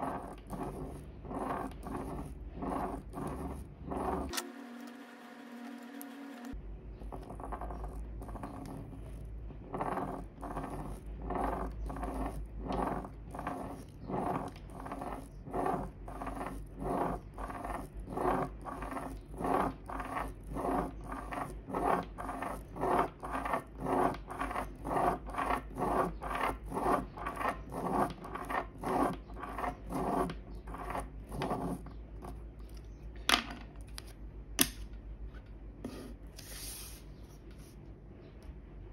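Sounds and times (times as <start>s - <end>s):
pen scratching on paper: 0.0s - 4.4s, 7.1s - 32.4s.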